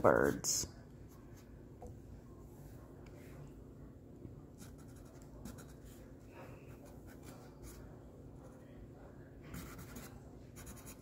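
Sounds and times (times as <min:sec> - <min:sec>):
marker scratching on canvas: 0:04.6 - 0:06.1, 0:09.5 - 0:11.0.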